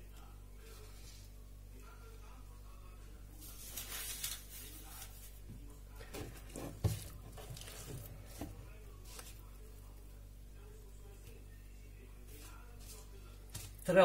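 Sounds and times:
hands squishing bread dough: 0:03.4 - 0:10.1.

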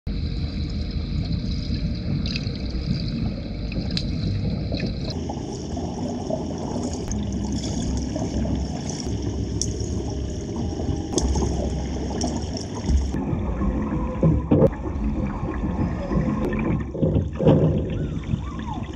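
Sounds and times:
bubbling water: 0:00.1 - 0:18.9
underwater rumble of water: 0:00.1 - 0:18.9
small underwater clicks: 0:02.2 - 0:05.2, 0:06.8 - 0:10.2, 0:11.1 - 0:13.2.

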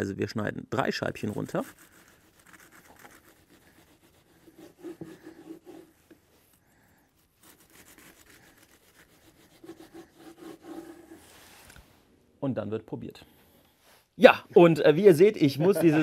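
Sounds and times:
knife sawing through bread: 0:01.2 - 0:06.0, 0:07.1 - 0:11.4.

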